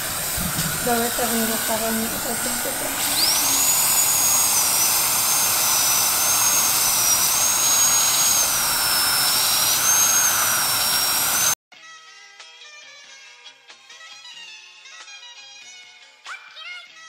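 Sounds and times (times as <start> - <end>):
dental drill whining: 0.0 - 11.6
suction tube hissing: 0.0 - 11.6.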